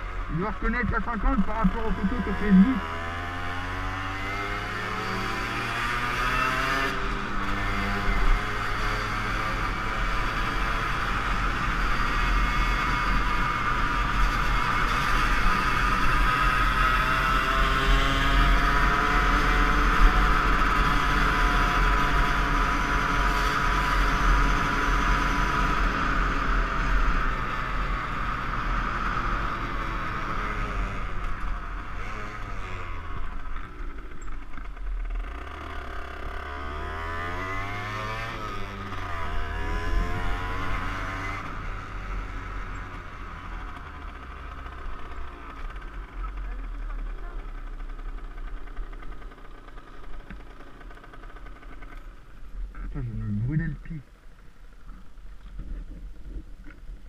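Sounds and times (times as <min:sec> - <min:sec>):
motorbike engine revving: 0:00.0 - 0:52.2
wind rumbling on camera: 0:54.8 - 0:57.0.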